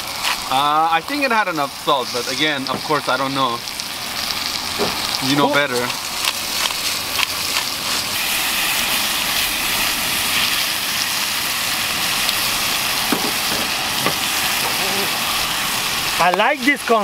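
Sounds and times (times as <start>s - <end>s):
steak sizzling in a skillet: 0.0s - 17.0s.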